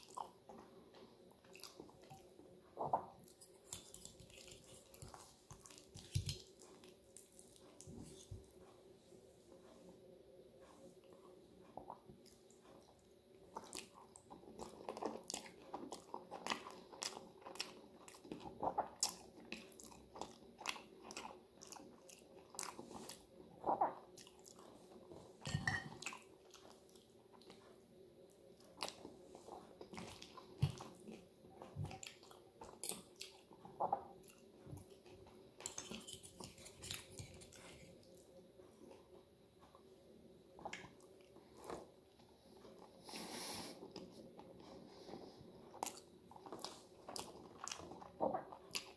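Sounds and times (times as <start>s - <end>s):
person chewing: 0.0s - 8.6s, 11.0s - 27.6s, 28.5s - 39.0s, 45.6s - 48.9s.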